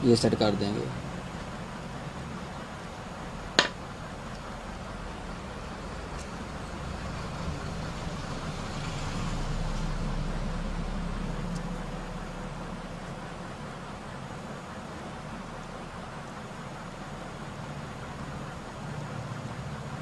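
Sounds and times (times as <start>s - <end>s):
low background rumble: 0.0s - 20.0s.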